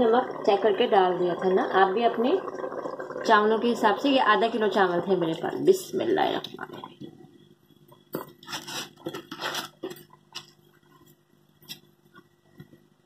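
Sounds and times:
kitchenware scraping metal pot: 8.2 - 10.5.

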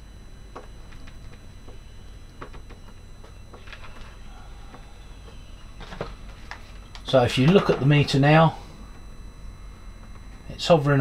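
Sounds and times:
test probes clicking on terminals: 0.0 - 8.2
faint low hum: 0.0 - 11.0.

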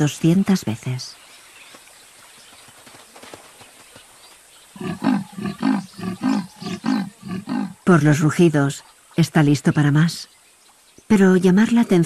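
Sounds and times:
leopard rasping roars: 4.8 - 7.8.

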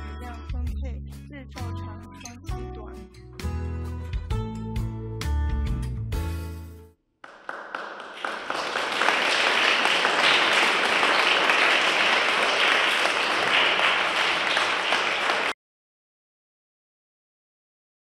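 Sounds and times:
audience applauding: 7.2 - 15.6.

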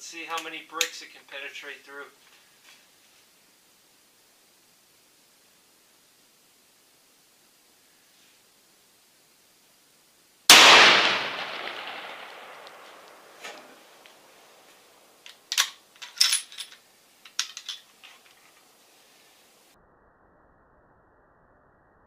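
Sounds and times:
rifle shot with echo: 10.5 - 14.0
rifle bolt clicks: 15.3 - 15.8.

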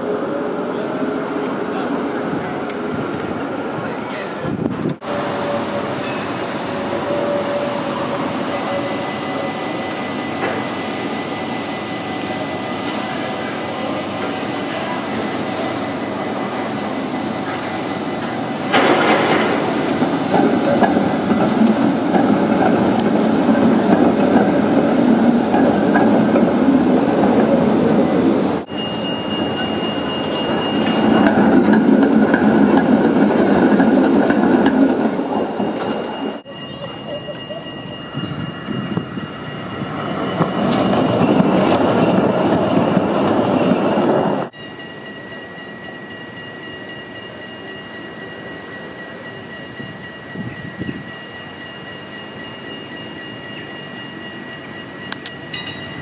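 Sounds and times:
tram wheels on rails: 0.0 - 56.0
thin high tone: 35.5 - 41.4.

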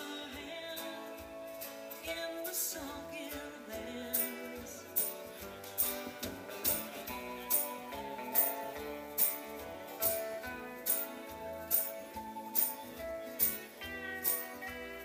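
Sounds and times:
live band playing: 0.0 - 15.0
percussion hits: 4.2 - 15.0.

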